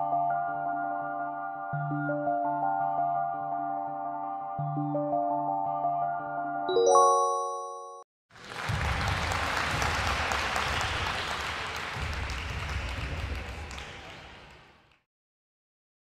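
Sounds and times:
rising chime ringing: 6.7 - 8.0
crowd applause: 8.3 - 15.0.

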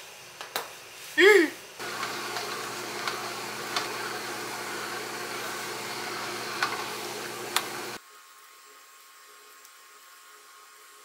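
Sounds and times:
small electric motor whirring: 1.8 - 8.0.

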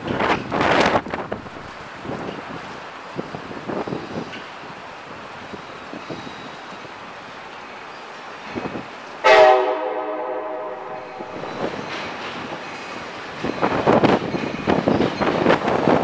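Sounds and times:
train horn: 9.2 - 11.4.

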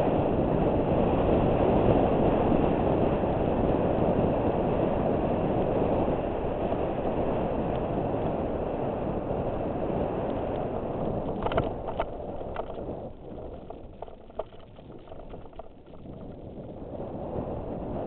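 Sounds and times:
bike tyres rumbling on gravel: 0.0 - 18.0
wind rushing over camera: 0.0 - 18.0
bike clicks and rattles: 10.2 - 16.8.

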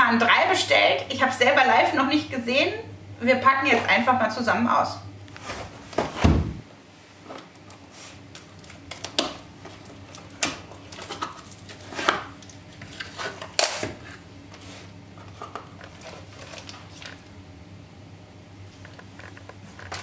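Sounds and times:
paper and plastic rustling: 7.3 - 17.3.

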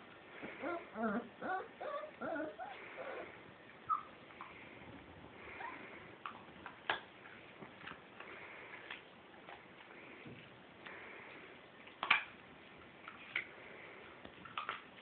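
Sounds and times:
puppy squeak: 3.9 - 4.2.

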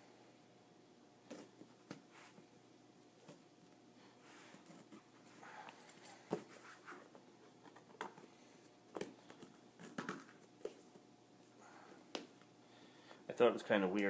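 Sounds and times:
rustling of box packing: 3.2 - 11.0.

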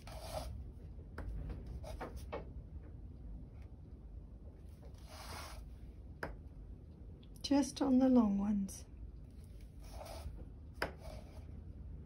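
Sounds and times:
low room hum: 0.0 - 12.0
canvas rubbing on cutting mat: 4.9 - 5.7, 9.6 - 10.4
dotting tool taps: 6.1 - 6.5, 10.4 - 11.2.

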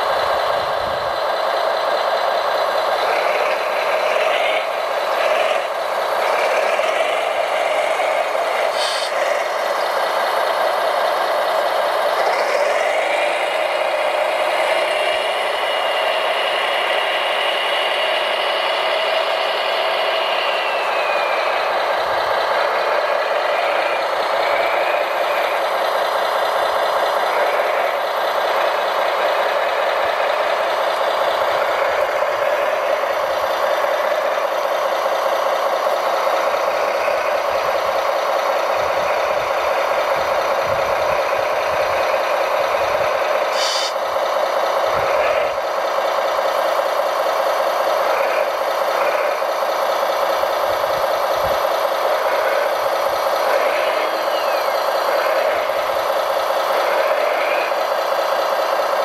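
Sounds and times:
model loader drive and hydraulics: 0.0 - 59.0
short high hiss: 8.7 - 9.2, 43.5 - 44.0.

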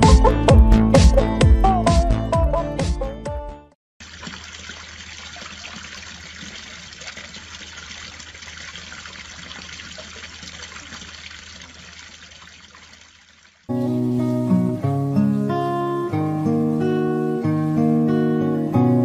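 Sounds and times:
fountain water splashing: 4.0 - 14.3.

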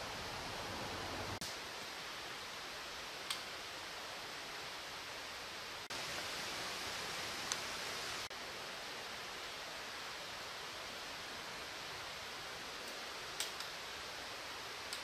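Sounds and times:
outdoor ambience hiss: 0.0 - 15.0.

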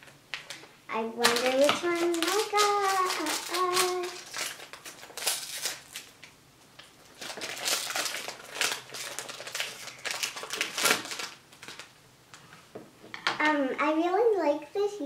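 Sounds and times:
foil bag crinkling: 0.0 - 12.0.

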